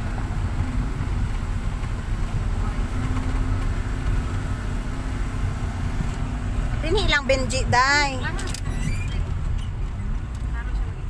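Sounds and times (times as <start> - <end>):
car rumbling on gravel road: 0.0 - 11.0.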